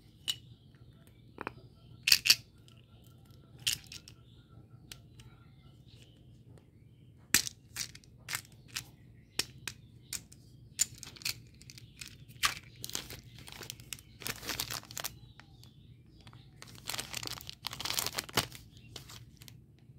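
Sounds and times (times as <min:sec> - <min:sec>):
plastic containers clicking: 0:03.6 - 0:04.1, 0:07.4 - 0:08.8, 0:09.4 - 0:19.5
plastic wrapper crinkling: 0:12.0 - 0:15.7, 0:16.3 - 0:19.5.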